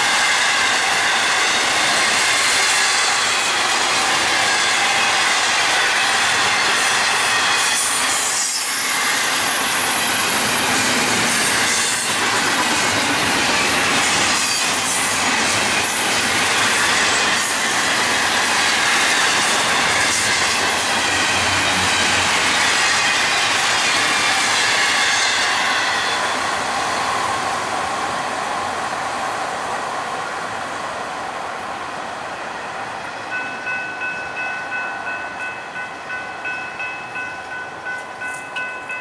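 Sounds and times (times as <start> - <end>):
train clatter: 0.0 - 29.4
train wheels running on rails: 0.0 - 39.0.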